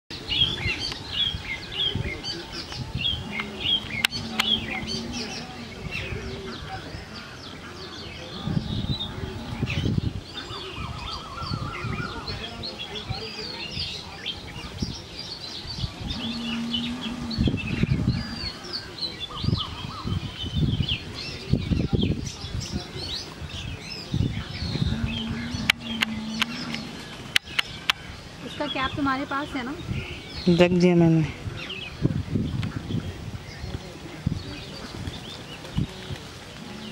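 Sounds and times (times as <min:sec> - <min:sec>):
small birds chirping: 0:00.1 - 0:36.9
pigeons cooing: 0:01.5 - 0:06.9, 0:07.5 - 0:12.7, 0:15.8 - 0:20.4, 0:24.0 - 0:28.0, 0:32.8 - 0:36.9
sharp clicks: 0:25.6 - 0:28.0.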